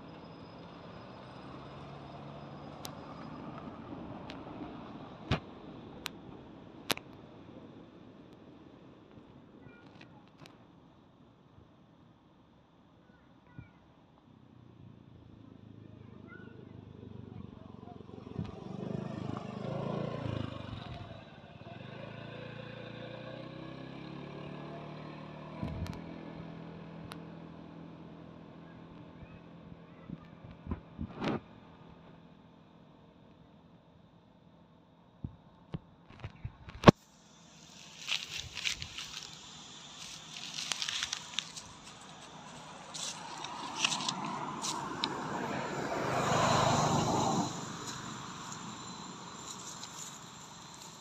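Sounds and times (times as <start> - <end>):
motor scooter passing: 18.0 - 27.6, 37.2 - 51.0
car driving past: 18.1 - 20.9, 37.4 - 51.0
engine running steadily: 25.5 - 51.0.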